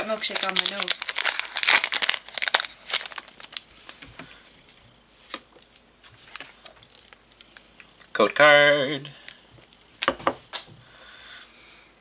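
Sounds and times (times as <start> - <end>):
foil wrapper crinkling: 0.0 - 4.0, 6.1 - 7.4.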